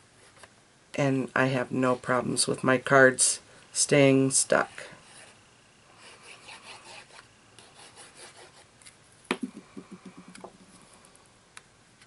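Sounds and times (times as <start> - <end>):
quick taps: 9.3 - 10.6.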